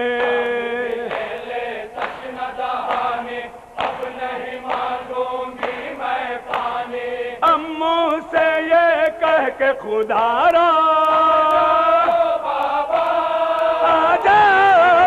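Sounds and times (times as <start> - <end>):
men chanting in rhythm: 0.0 - 15.0
hands slapping chests: 0.2 - 7.0.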